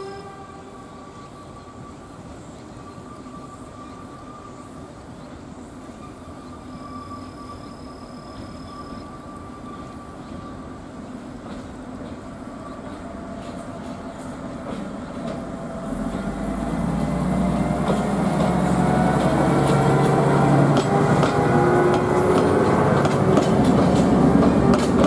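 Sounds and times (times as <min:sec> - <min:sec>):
diesel locomotive engine drone: 0:00.0 - 0:25.0
train wheels clattering on rails: 0:08.3 - 0:25.0.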